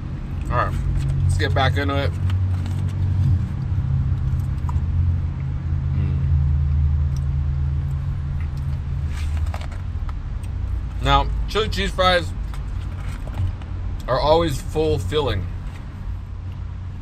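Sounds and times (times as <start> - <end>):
car idling hum: 0.0 - 17.0.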